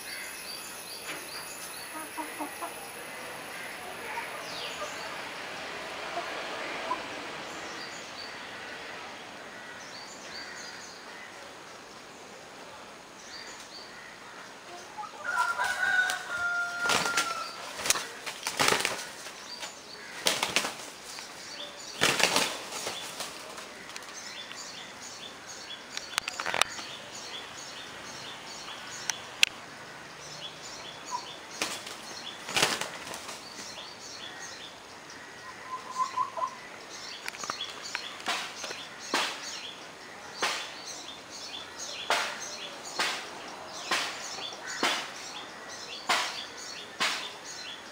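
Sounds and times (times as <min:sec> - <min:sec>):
rooster wings flapping: 0:15.6 - 0:21.1, 0:22.0 - 0:24.1, 0:31.6 - 0:33.4.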